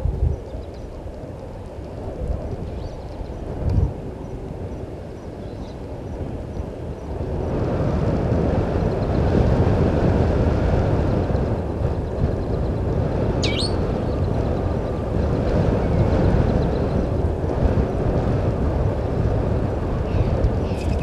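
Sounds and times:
low rumbling noise: 0.0s - 21.0s
short high bird call: 13.4s - 13.9s.

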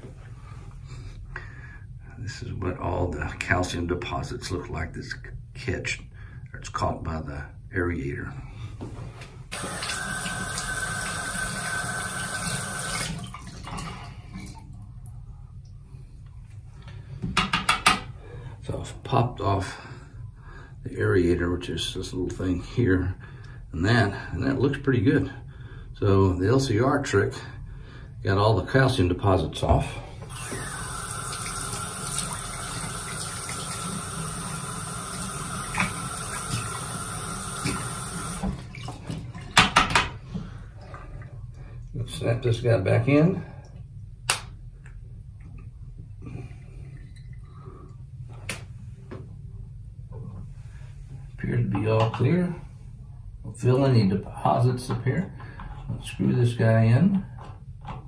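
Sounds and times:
faucet running and splashing: 9.5s - 14.0s, 30.3s - 39.1s.

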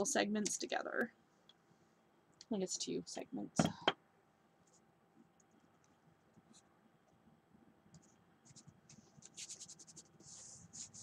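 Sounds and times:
scratchy rubbing of wiping: 9.4s - 11.0s.

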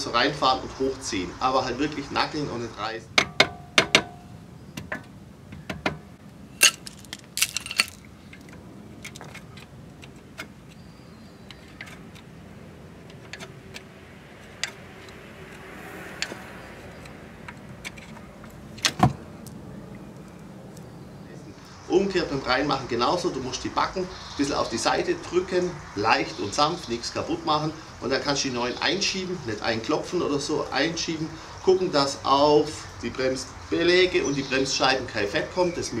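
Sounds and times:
metallic clicks and clinks: 6.6s - 9.7s.

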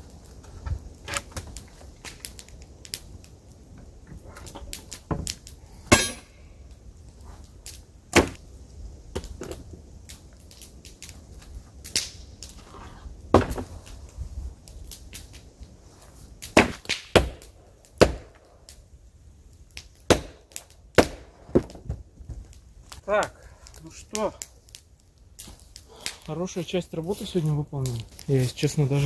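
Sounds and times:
wooden boards knocking and cracking: 8.1s - 8.4s, 13.3s - 13.7s, 21.0s - 22.5s.

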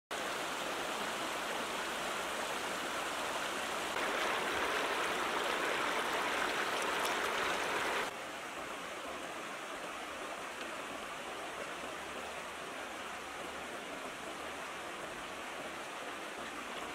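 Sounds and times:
water rushing over stones: 3.7s - 8.2s.

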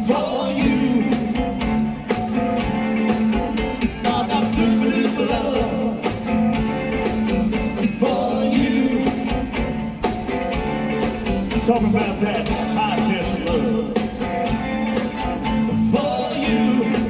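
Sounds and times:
person singing: 0.0s - 1.5s, 3.9s - 6.2s, 15.7s - 17.0s
live rock band playing: 0.0s - 17.0s.

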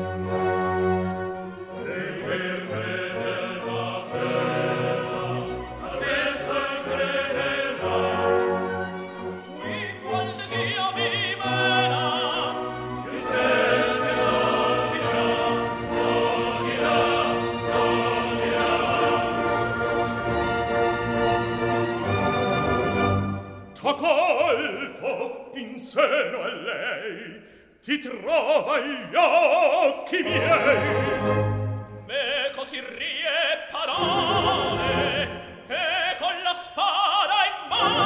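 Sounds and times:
orchestra playing: 0.0s - 23.8s, 30.2s - 32.3s, 34.0s - 35.6s
operatic singing with vibrato: 0.0s - 38.0s.

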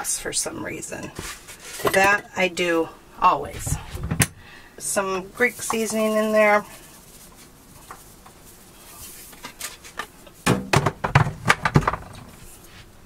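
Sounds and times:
kitchen items knocking and clattering: 1.1s - 2.3s, 9.4s - 12.4s.

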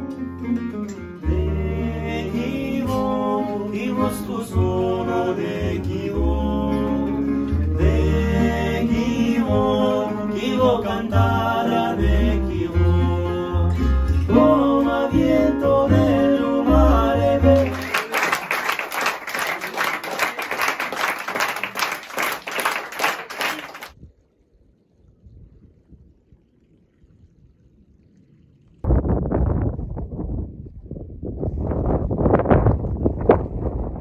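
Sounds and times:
acoustic band playing: 0.0s - 19.1s
man singing: 1.2s - 17.9s
audience applause: 17.6s - 24.0s.

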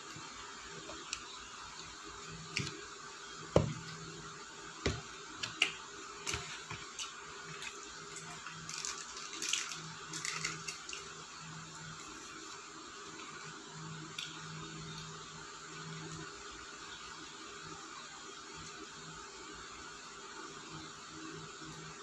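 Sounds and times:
plastic cup crinkling: 6.3s - 11.1s.

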